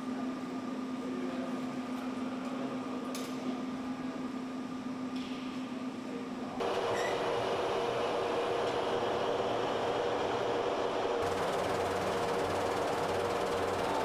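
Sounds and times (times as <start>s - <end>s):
hangar machinery noise: 6.6s - 14.0s.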